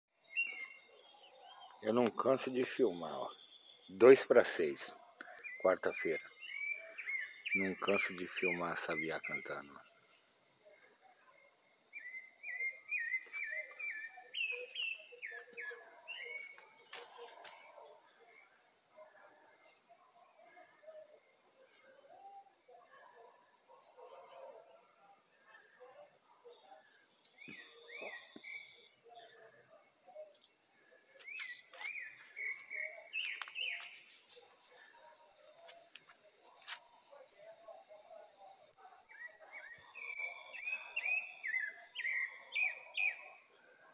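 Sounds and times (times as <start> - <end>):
insect trill: 0.2 - 43.9.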